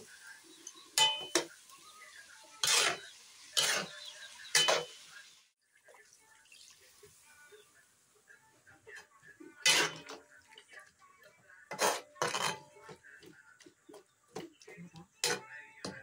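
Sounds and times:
metal spatula clanking in a wok: 1.0 - 1.5, 2.6 - 4.9.

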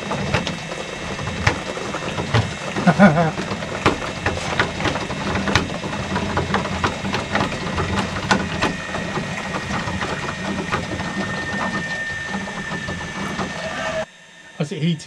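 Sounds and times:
ticking and crackling: 0.0 - 14.1
water heater humming: 0.0 - 15.0.

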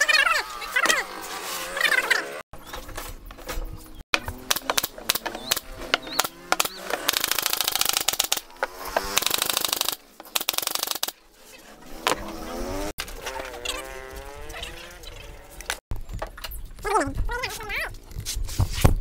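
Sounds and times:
nail gun shots: 4.2 - 11.2
fast rattling buzz: 4.3 - 11.2.

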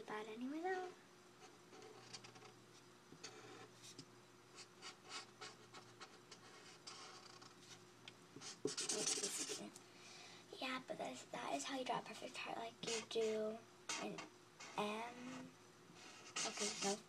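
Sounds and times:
marker scratching on paper: 4.6 - 7.6, 8.4 - 9.7, 12.8 - 17.0.

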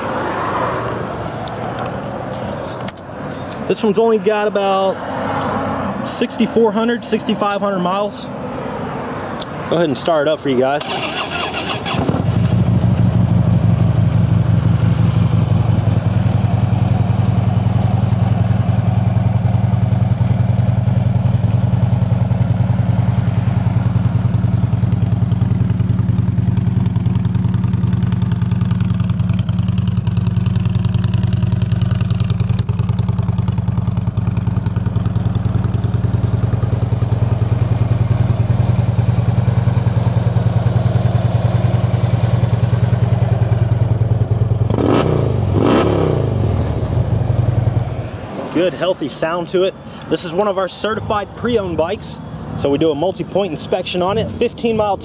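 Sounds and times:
motorcycle engine idling: 10.8 - 48.9.

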